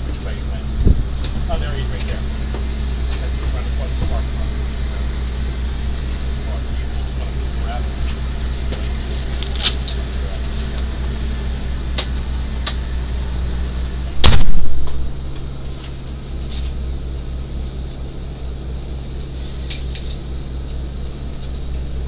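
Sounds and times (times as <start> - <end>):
ambulance engine hum: 0.0 - 22.0
loud thump: 14.2 - 15.1.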